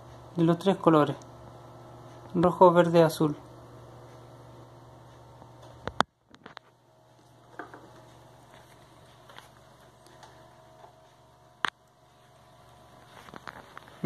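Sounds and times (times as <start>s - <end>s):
phone handling clicks and knocks: 7.5s - 8.0s.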